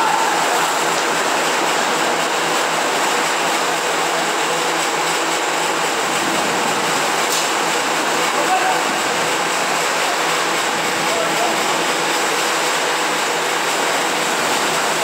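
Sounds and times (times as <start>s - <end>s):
heavy rain: 0.0s - 3.6s.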